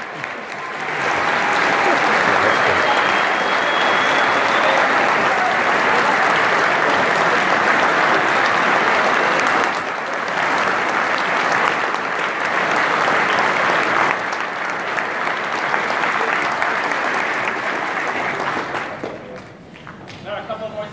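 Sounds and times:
audience applauding: 0.0s - 20.1s.

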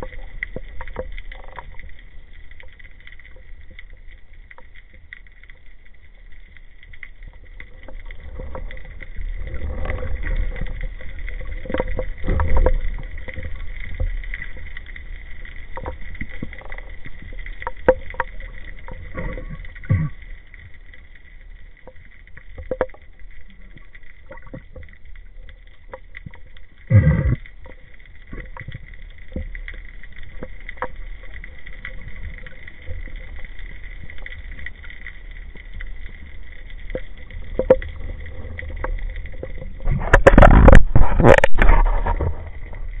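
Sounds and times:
faint underwater clicks: 0.0s - 43.0s
underwater low rumble: 0.0s - 43.0s
rush of water noise: 36.2s - 43.0s.

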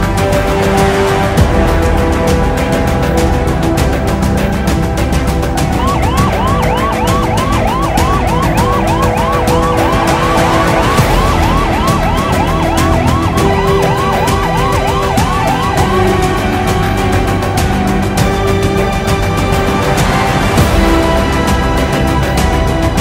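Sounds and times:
background music with beat: 0.0s - 23.0s
ambulance siren yelping: 5.6s - 18.3s.

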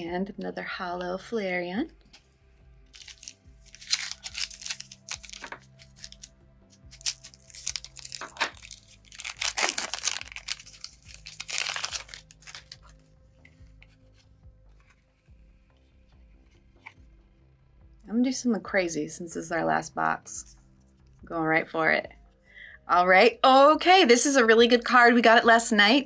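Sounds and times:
faint background music: 0.0s - 26.0s
foil wrapper tearing and crinkling: 2.9s - 13.1s.

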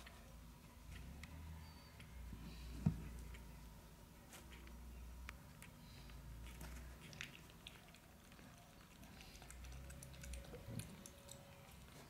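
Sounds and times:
puppies licking from metal bowl: 7.0s - 12.0s.

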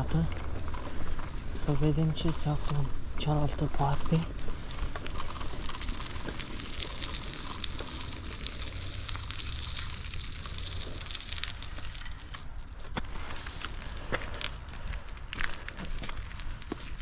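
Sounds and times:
bicycle tyres crunching on rough path: 0.0s - 17.0s.

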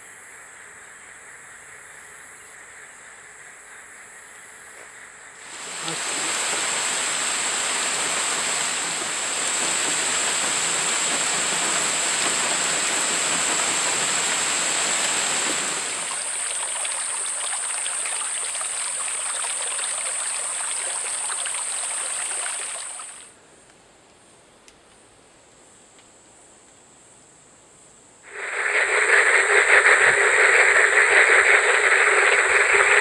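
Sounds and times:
heavy rain pouring: 5.4s - 23.3s, 28.3s - 33.0s.

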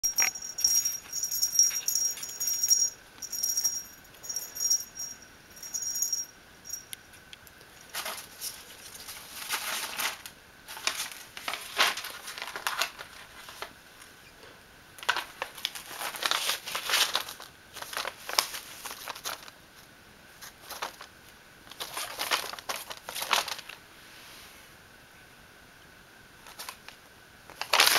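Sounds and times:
high tinkling: 0.0s - 7.2s
paper rustling and crinkling: 7.8s - 14.1s, 15.0s - 23.8s, 26.4s - 27.9s.

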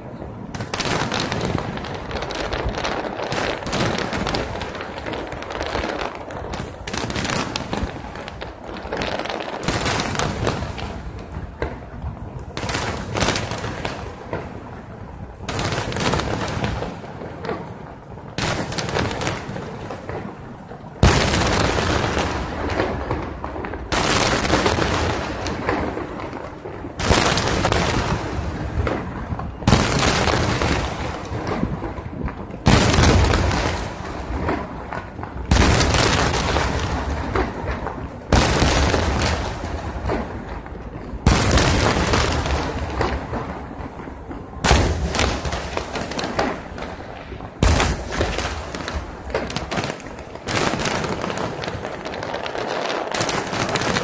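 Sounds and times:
fireworks booming and crackling: 0.0s - 54.0s.

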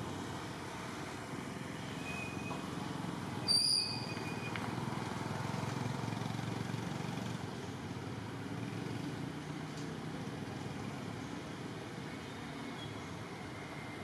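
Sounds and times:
outdoor background rumble: 0.0s - 14.0s.

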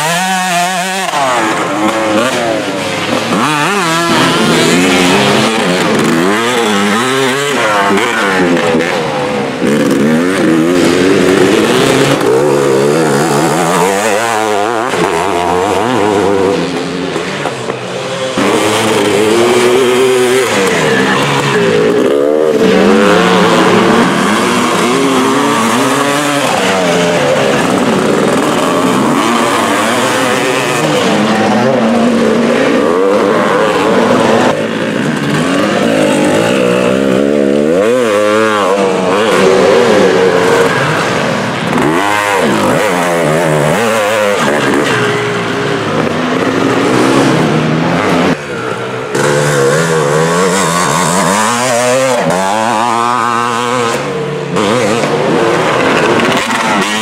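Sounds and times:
motocross bike engines revving: 0.0s - 57.0s.

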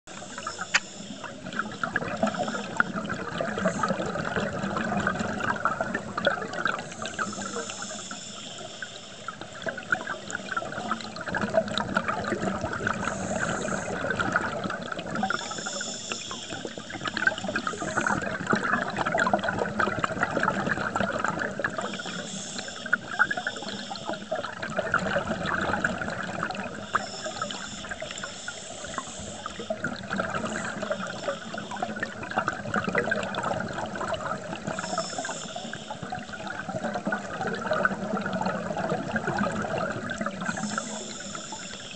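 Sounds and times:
diver exhaling hissing bursts: 0.1s - 2.9s, 6.8s - 9.3s, 13.0s - 14.0s, 15.3s - 18.3s, 21.8s - 24.3s, 26.9s - 29.7s, 34.7s - 36.0s, 40.4s - 41.9s
scuba regulator bubbles underwater: 0.1s - 41.9s.

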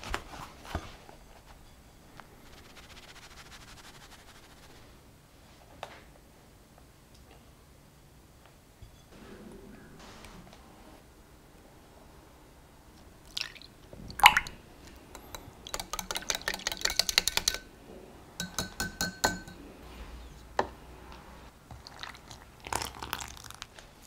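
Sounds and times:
whisk ticking against glass: 15.1s - 17.7s, 18.4s - 19.6s.

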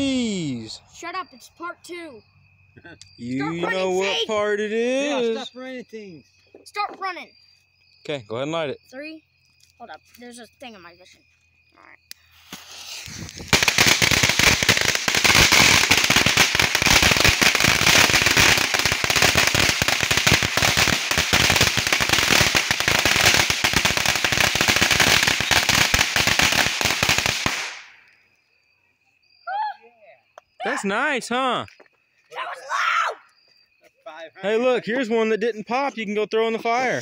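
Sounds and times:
firecrackers crackling: 12.1s - 28.1s
fuse hissing: 12.2s - 14.2s.

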